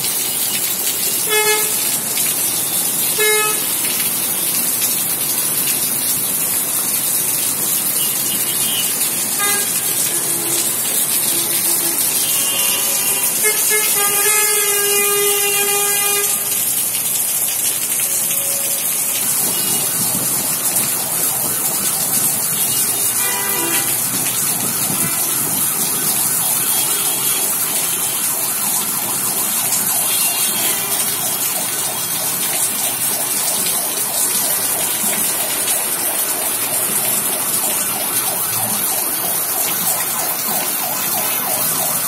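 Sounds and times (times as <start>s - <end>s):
vehicle horns honking: 1.2s - 1.8s, 3.2s - 3.6s, 8.3s - 10.7s, 11.3s - 16.5s, 23.2s - 24.0s.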